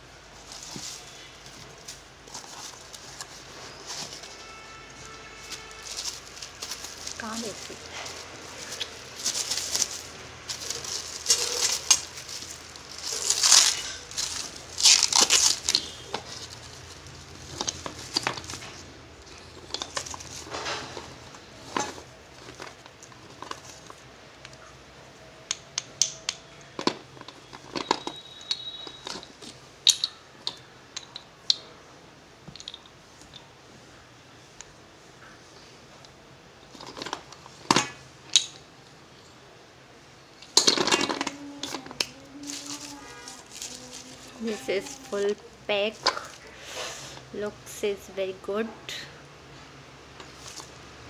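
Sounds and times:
plastic packet crinkling: 0.4 - 24.7, 40.6 - 46.5.

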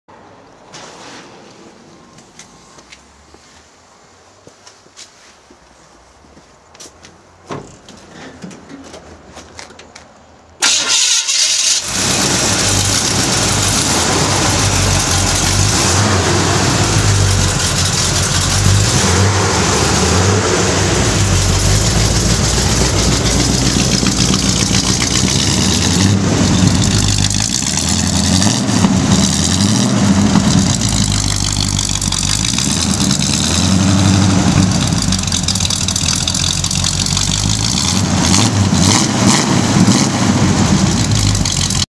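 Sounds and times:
car engine starting: 10.6 - 41.9
engine idling loudly: 11.8 - 39.0, 40.3 - 41.8.

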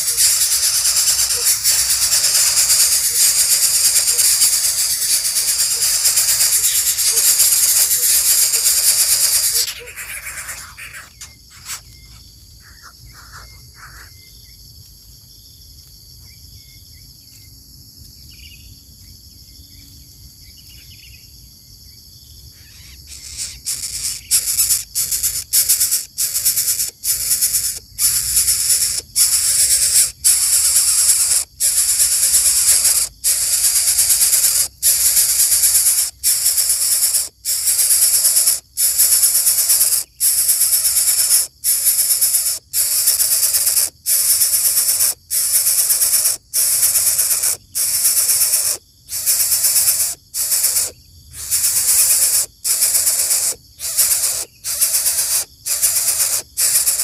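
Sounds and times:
nestlings hissing: 0.0 - 12.0, 12.6 - 14.1, 22.8 - 57.0
faint high bird calls: 0.0 - 14.6, 22.4 - 57.0.

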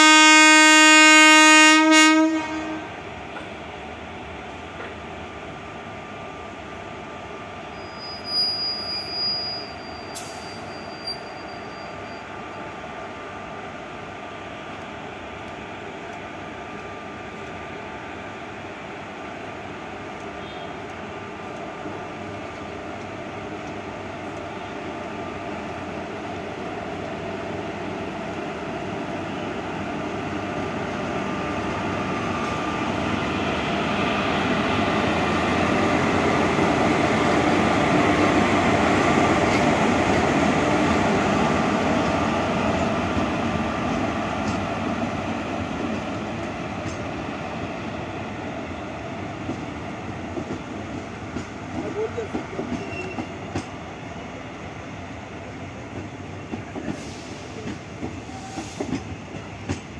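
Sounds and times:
train wheels rumbling on rail: 0.0 - 59.9
high whistle-like tone: 7.7 - 12.3.

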